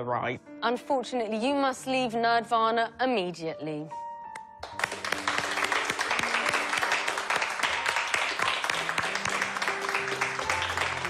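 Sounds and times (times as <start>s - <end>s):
background music held notes: 0.0s - 11.0s
people clapping: 4.6s - 11.0s.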